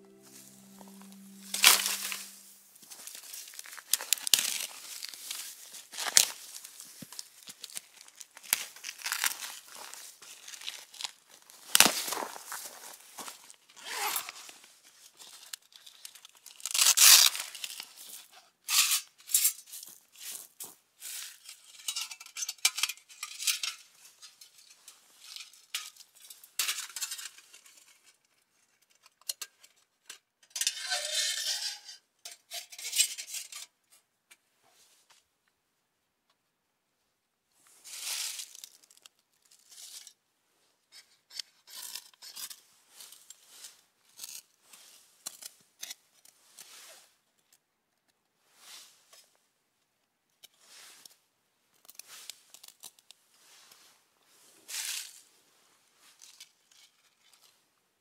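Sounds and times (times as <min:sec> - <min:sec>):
sticks and paper crinkling and tearing: 0:00.1 - 0:18.3, 0:51.8 - 0:53.8.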